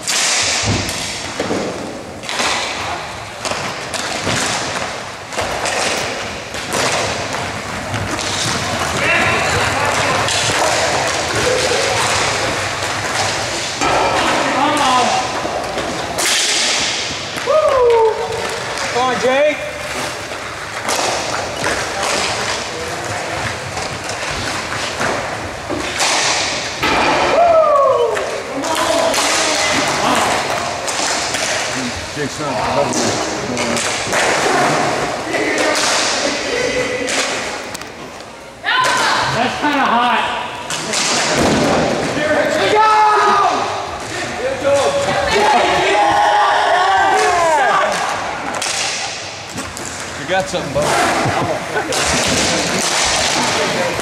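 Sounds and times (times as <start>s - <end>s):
ball thumps in echoing hall: 0.0s - 31.9s, 40.6s - 42.5s, 47.0s - 54.0s
steady background din: 0.0s - 54.0s
team game noise: 0.0s - 54.0s.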